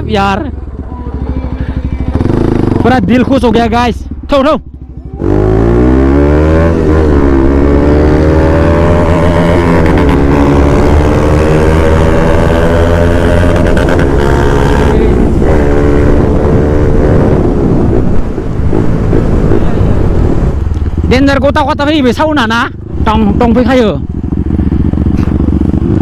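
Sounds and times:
motorcycle engine accelerating: 0:00.0 - 0:26.0
wind rushing: 0:05.2 - 0:26.0.

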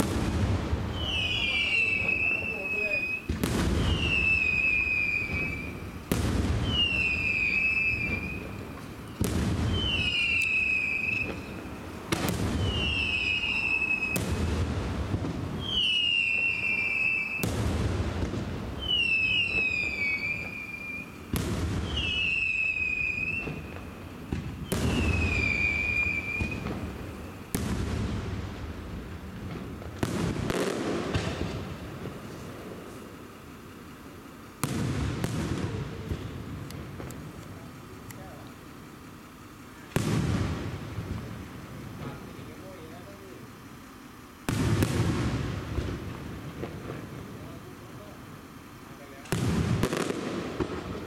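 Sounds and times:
fireworks banging: 0:00.0 - 0:51.0
firework whistle falling in pitch: 0:00.9 - 0:05.9, 0:06.5 - 0:11.7, 0:12.3 - 0:14.4, 0:15.6 - 0:17.7, 0:18.8 - 0:23.9, 0:24.5 - 0:27.6.

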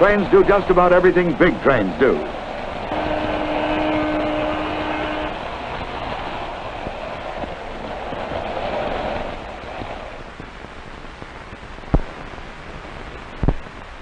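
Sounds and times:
film hiss: 0:00.0 - 0:14.0
train rumble: 0:00.0 - 0:14.0.

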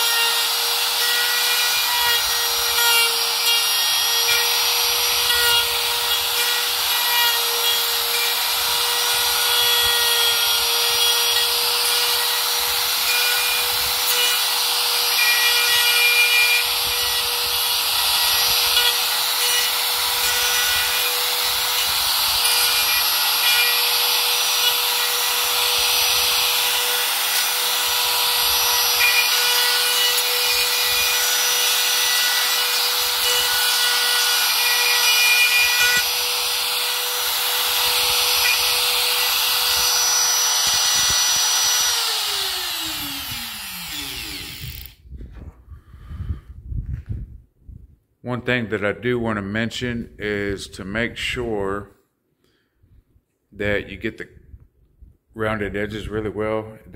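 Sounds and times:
electric router cutting wood: 0:00.0 - 0:45.0
router motor spinning down: 0:00.0 - 0:45.0.

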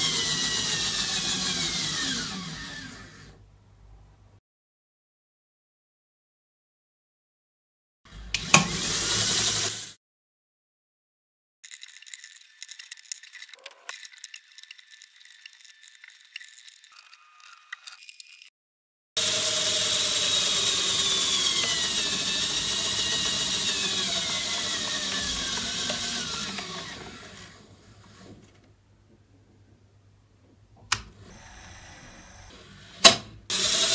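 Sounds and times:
motor driven gears whirring: 0:00.0 - 0:03.3, 0:08.1 - 0:10.0, 0:19.2 - 0:28.5, 0:32.3 - 0:33.9.

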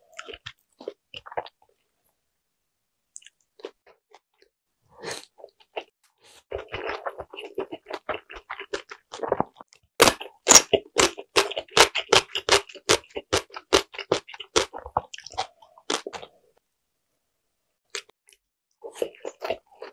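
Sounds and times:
chewing dumpling: 0:00.0 - 0:02.0, 0:03.1 - 0:04.5, 0:05.2 - 0:16.4, 0:17.9 - 0:19.9.

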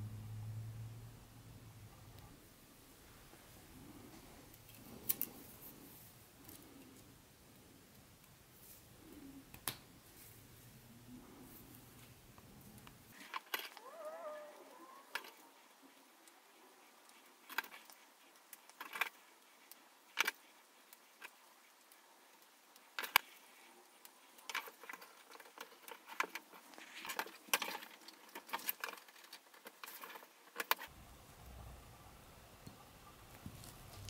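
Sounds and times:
low hum: 0:00.0 - 0:05.6, 0:30.9 - 0:34.0
small plastic parts clicking: 0:17.1 - 0:19.2, 0:23.0 - 0:23.4, 0:24.4 - 0:30.9.

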